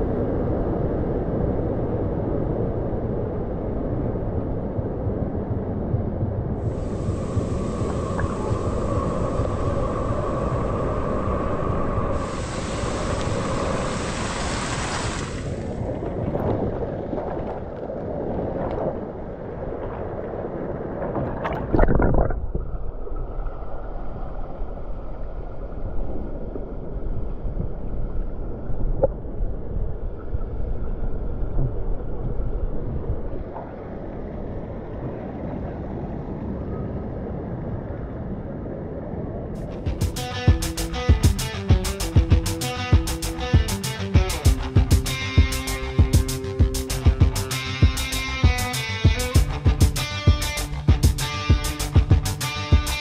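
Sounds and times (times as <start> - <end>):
muffled underwater rumble: 0.0 - 40.1
water jet spray hissing: 6.7 - 10.9, 12.1 - 15.7.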